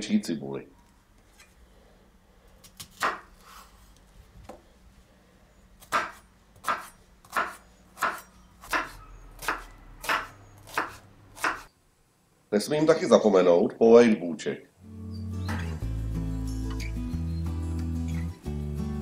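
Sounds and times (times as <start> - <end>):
knife chopping on wooden board: 5.8 - 11.7.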